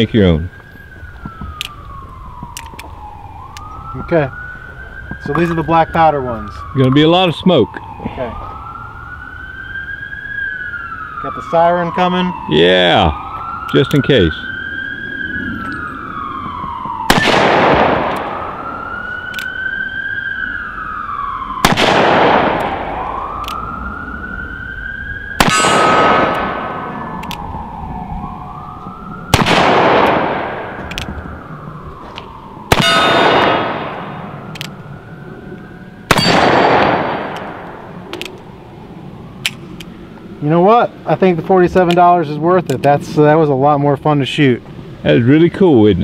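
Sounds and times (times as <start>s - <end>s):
siren wailing: 0.0s - 46.0s
revolver gunshots: 17.0s - 18.8s, 21.6s - 23.6s, 25.3s - 27.5s, 29.3s - 31.2s, 32.7s - 34.7s, 36.1s - 38.3s.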